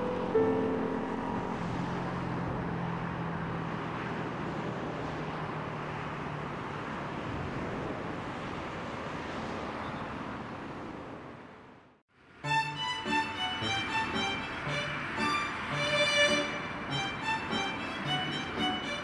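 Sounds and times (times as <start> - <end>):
road traffic: 0.0 - 19.0
electric train running: 12.4 - 19.0.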